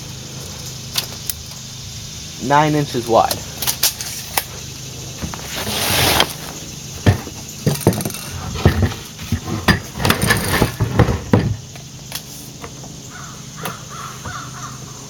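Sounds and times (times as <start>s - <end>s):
objects knocking on wooden workbench: 7.0s - 11.6s
crow cawing: 13.1s - 15.0s.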